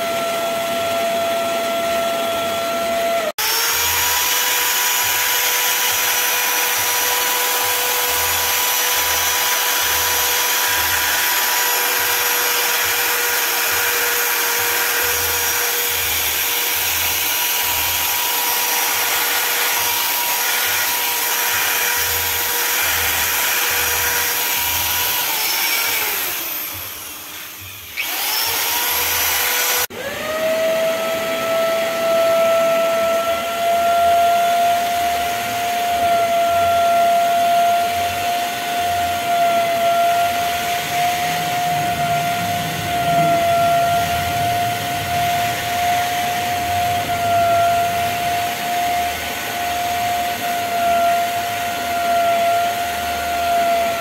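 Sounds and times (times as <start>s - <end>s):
carpet cleaner motor starting up: 0.0s - 33.4s, 38.5s - 54.0s
electric drill brush scrubbing carpet: 0.0s - 54.0s.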